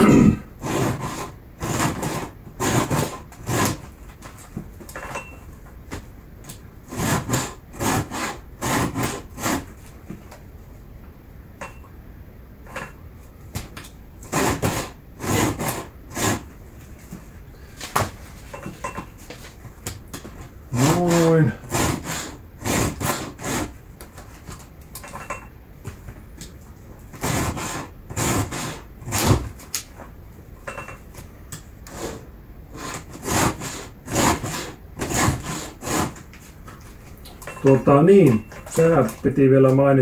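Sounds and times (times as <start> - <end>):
file rasping on chainsaw chain: 6.9 - 9.6, 20.7 - 23.7, 32.8 - 36.2.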